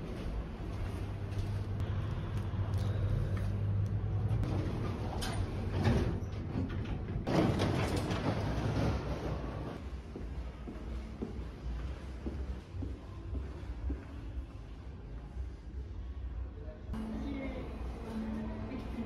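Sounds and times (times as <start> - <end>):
sliding doors rumbling open: 4.1 - 9.8.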